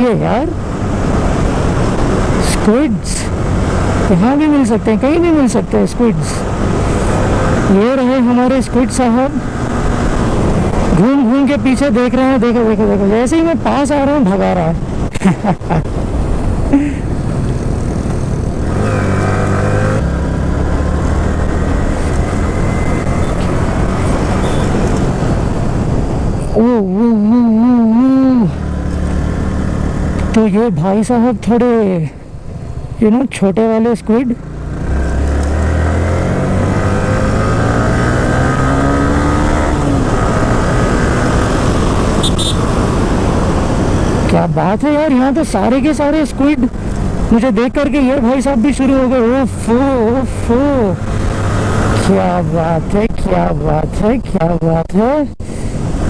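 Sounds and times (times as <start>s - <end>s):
wind rushing: 9.3s - 11.0s, 15.8s - 26.6s
motorcycle engine running: 34.2s - 44.3s.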